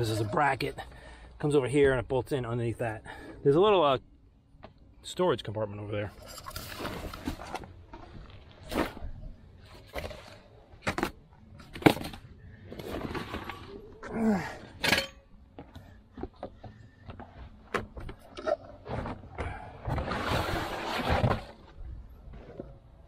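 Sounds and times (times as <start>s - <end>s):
carpet rustling and dragging: 18.8s - 22.8s.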